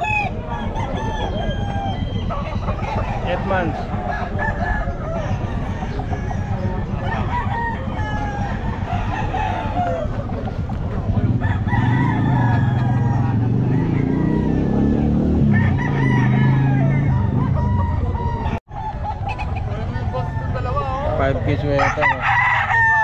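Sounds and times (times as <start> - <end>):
roosters crowing and clucking: 0.0 - 23.0.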